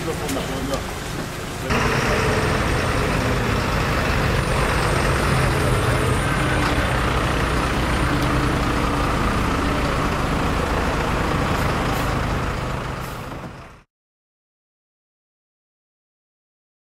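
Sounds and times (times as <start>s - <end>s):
diesel truck engine idling: 0.0s - 13.9s.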